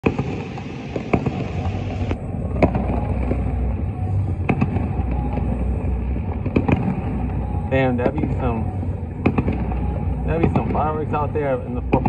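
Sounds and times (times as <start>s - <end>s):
fireworks cracking and popping: 0.0s - 3.5s, 4.4s - 5.6s, 6.3s - 7.4s, 9.2s - 11.0s
low rumble: 0.0s - 12.0s.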